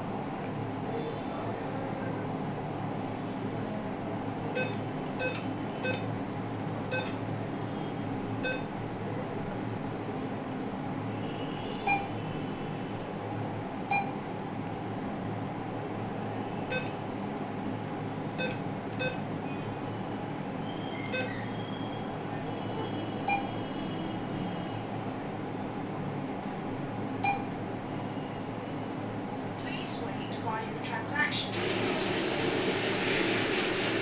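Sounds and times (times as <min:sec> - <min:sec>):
short machine beeps: 0:04.6 - 0:06.1, 0:06.9 - 0:07.2, 0:08.4 - 0:08.7, 0:11.8 - 0:12.2, 0:13.9 - 0:14.2, 0:16.7 - 0:16.9, 0:23.2 - 0:23.7, 0:27.2 - 0:27.5.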